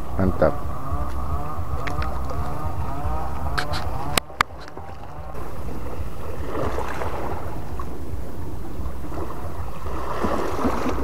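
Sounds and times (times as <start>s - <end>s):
wind rumbling on microphone: 0.0s - 11.0s
small waves washing at shore: 3.2s - 11.0s.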